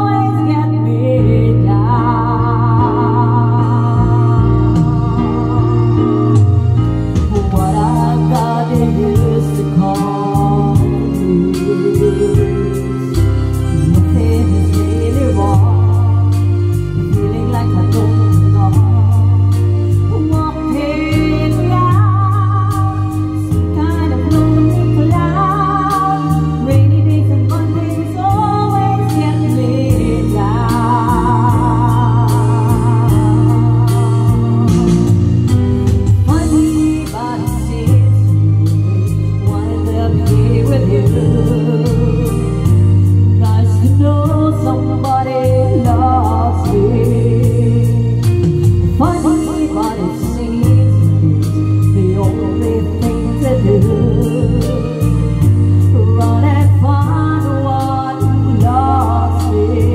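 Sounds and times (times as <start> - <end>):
person singing with vibrato: 0.0 - 59.9
sustained keyboard chords: 0.0 - 59.9
steady beat: 30.2 - 38.0.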